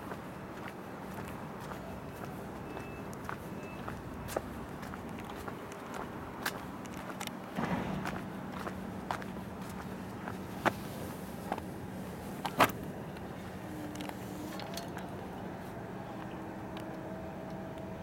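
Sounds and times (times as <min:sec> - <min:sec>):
low hum of rail yard: 0:00.0 - 0:18.0
sharp knocks: 0:07.6 - 0:08.3.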